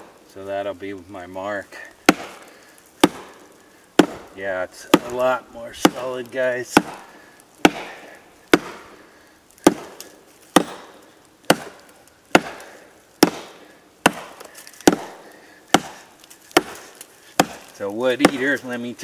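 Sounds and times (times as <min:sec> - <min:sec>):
knife chopping dry log: 0:02.0 - 0:03.4, 0:04.0 - 0:06.1, 0:06.7 - 0:09.0, 0:09.6 - 0:18.6.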